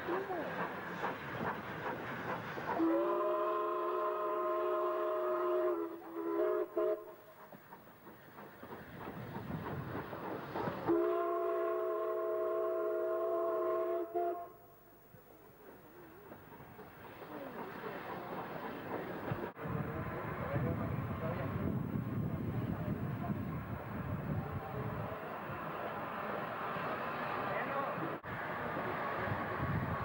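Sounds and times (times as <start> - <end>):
train running noise: 0.0 - 30.0
steam locomotive whistle blasts: 2.8 - 7.2, 10.9 - 14.6.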